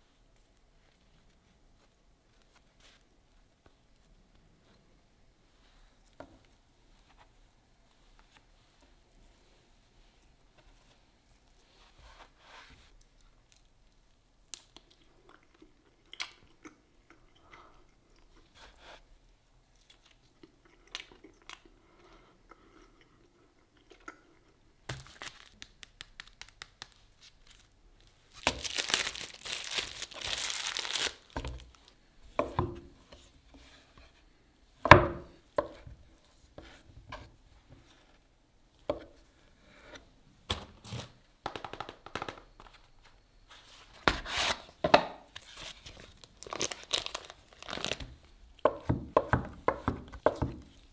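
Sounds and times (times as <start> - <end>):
packaging tearing and crinkling: 25.0 - 26.5, 28.3 - 31.8, 45.4 - 48.1
food packaging tapping: 41.4 - 42.7.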